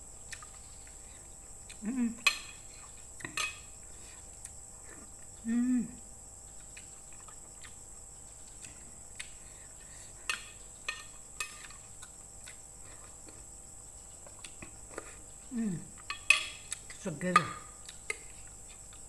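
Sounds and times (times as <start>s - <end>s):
woman humming: 1.7s - 2.3s, 5.4s - 6.1s, 15.5s - 16.0s
cutlery clinking on a plate: 3.3s - 3.7s, 16.1s - 16.6s.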